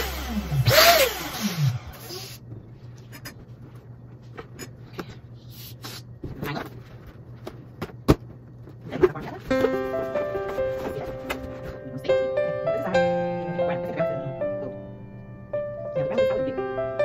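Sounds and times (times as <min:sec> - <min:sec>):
music: 0:09.4 - 0:17.0.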